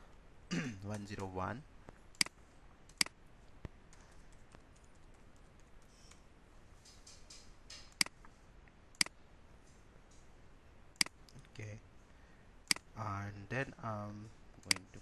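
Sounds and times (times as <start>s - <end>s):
sharp mouse clicks: 14.6s - 14.9s.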